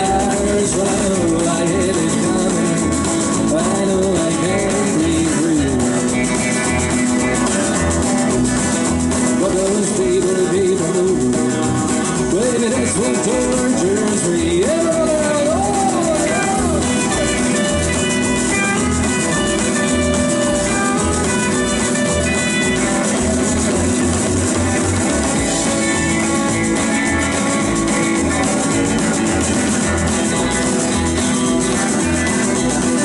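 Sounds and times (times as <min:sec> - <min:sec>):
person singing: 0:00.0 - 0:06.9, 0:09.3 - 0:18.4
pulsing bass line: 0:00.0 - 0:33.0
rockabilly band playing live: 0:00.0 - 0:33.0.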